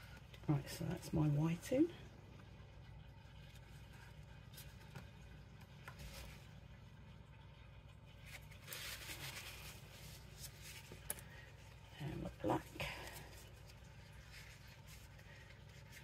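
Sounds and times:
soft rustling hiss: 8.1s - 16.0s.

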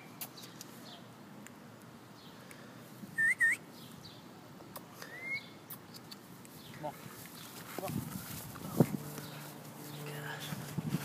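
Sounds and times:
faint outdoor background: 0.0s - 11.0s
high whistled chirps: 3.2s - 3.6s, 5.1s - 5.6s.

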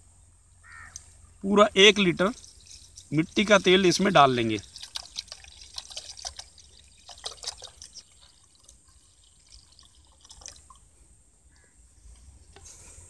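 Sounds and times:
liquid glugging and splashing into pot: 2.3s - 10.9s.

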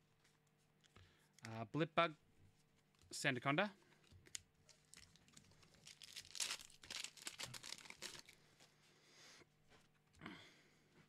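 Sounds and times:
foil wrapper tearing and crinkling: 4.7s - 8.4s.

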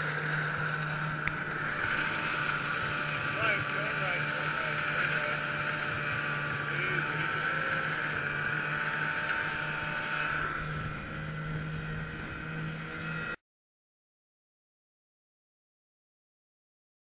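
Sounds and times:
snowmobile engine running: 0.0s - 13.4s.

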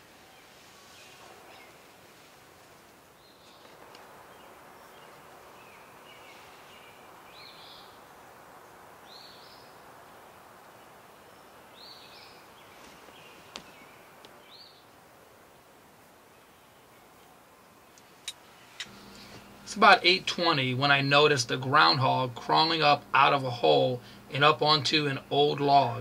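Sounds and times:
songbird calls: 0.0s - 2.3s, 3.1s - 15.0s
background hiss: 0.0s - 26.0s.

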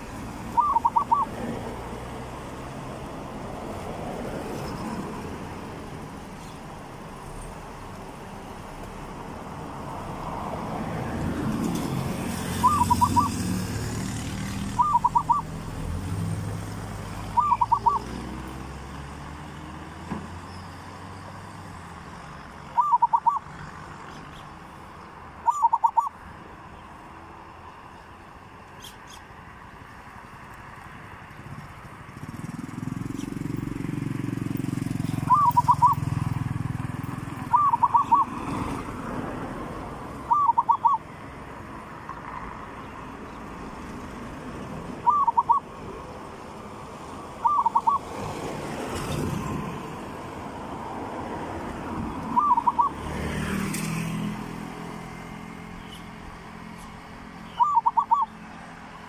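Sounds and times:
dove cooing: 0.4s - 1.5s, 12.5s - 15.6s, 17.3s - 18.2s, 22.7s - 23.6s, 25.4s - 26.2s, 35.0s - 36.2s, 37.4s - 38.5s, 40.2s - 41.1s, 45.0s - 45.7s, 47.4s - 48.2s, 52.3s - 53.1s, 57.5s - 58.4s.

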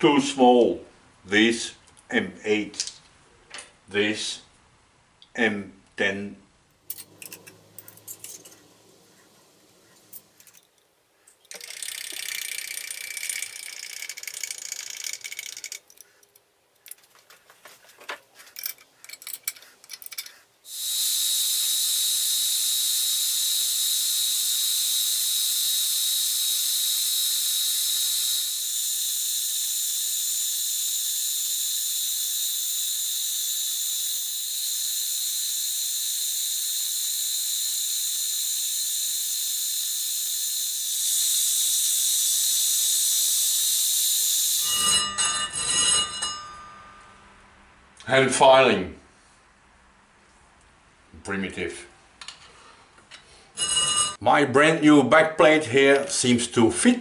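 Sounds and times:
milling machine whine: 20.7s - 45.0s.

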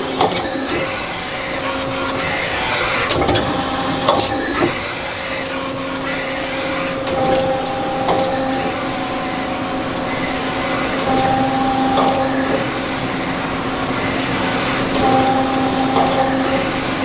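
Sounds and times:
machine humming: 0.0s - 17.0s.

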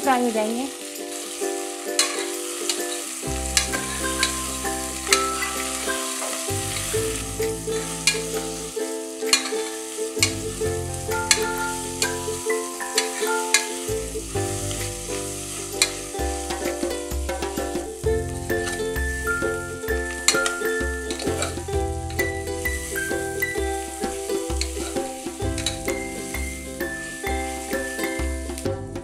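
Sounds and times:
onions sizzling in hot oil: 0.0s - 28.9s
background music with bass line: 3.2s - 8.7s, 10.2s - 12.5s, 13.9s - 29.0s.

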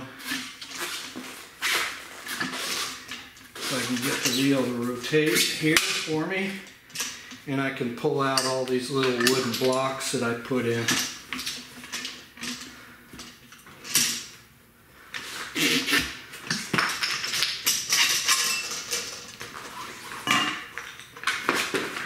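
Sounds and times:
tools clattering and knocking: 8.3s - 9.9s, 10.7s - 14.4s, 16.4s - 22.0s.

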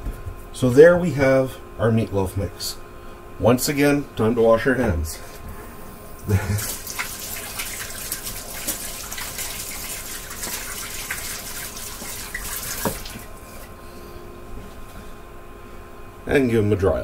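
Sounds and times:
tap running over washing hands: 6.6s - 13.7s.

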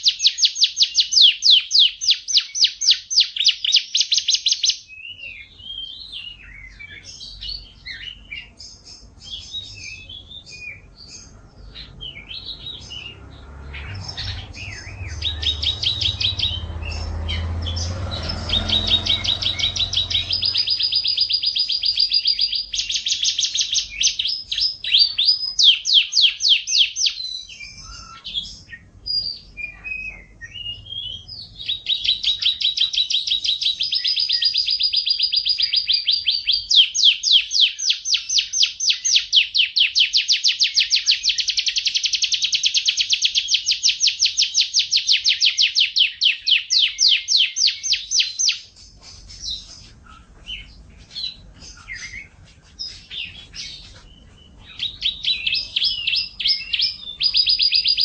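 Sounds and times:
canary singing trills: 0.0s - 58.0s
low rumble: 11.3s - 21.3s.

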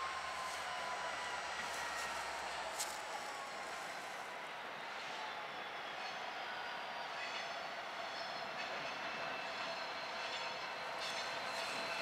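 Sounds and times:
freight train approaching rumble: 0.0s - 5.4s.

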